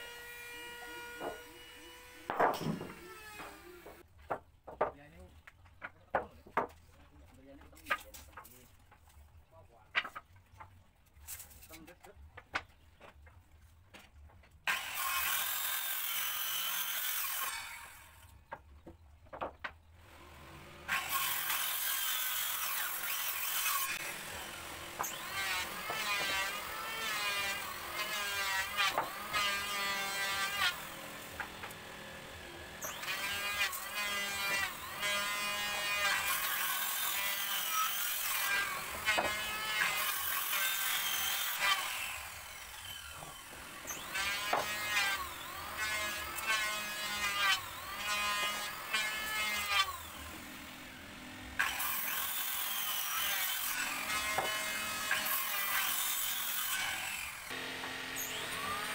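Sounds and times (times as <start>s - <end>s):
electric power saw cutting wood: 0.0s - 4.0s, 14.7s - 18.3s, 20.1s - 58.9s.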